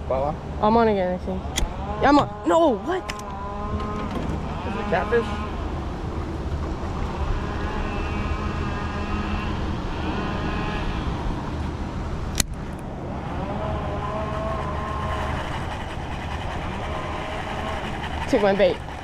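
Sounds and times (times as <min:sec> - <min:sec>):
steady low rumble: 0:05.3 - 0:19.0.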